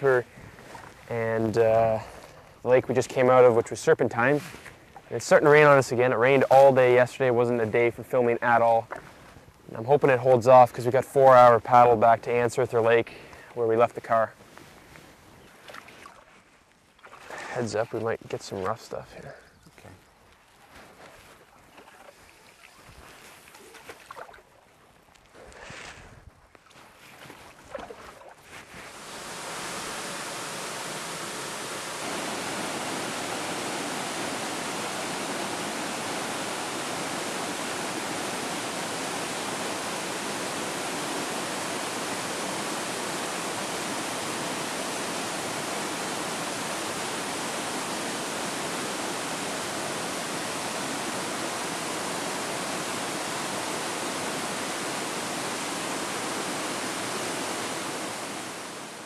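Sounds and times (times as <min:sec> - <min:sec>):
waterfall rushing: 0:28.9 - 0:59.0.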